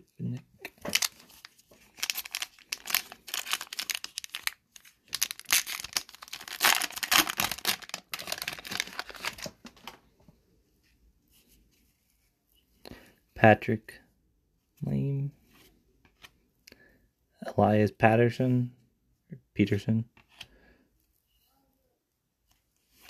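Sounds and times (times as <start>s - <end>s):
foil wrapper tearing and crinkling: 0.9s - 9.6s.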